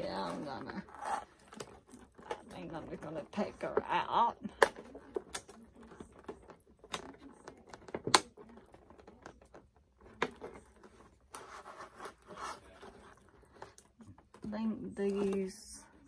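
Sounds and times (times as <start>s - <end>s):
plastic box clicks and taps: 6.9s - 8.4s.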